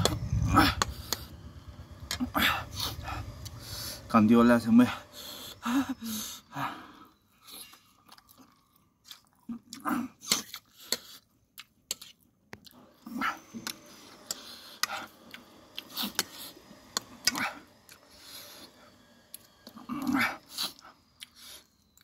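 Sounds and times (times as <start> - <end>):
close chewing of noodles: 7.4 - 22.0.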